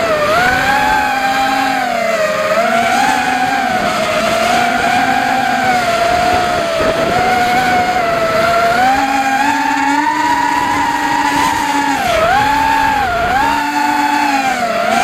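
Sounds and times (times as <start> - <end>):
quadcopter motors whining: 0.0 - 15.0
wind noise: 3.7 - 15.0.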